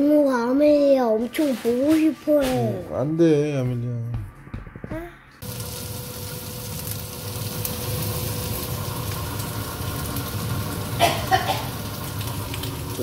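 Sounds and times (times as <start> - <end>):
gas stove hiss: 5.4 - 13.0
stew boiling in a pot: 5.4 - 13.0.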